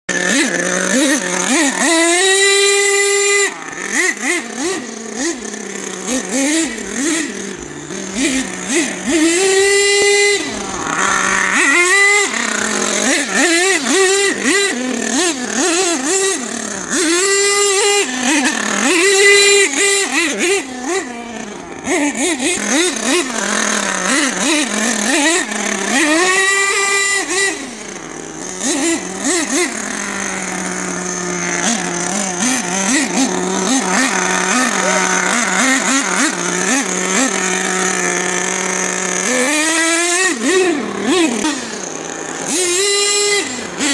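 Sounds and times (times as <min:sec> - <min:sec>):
small engine buzzing: 0:00.1 - 0:43.9.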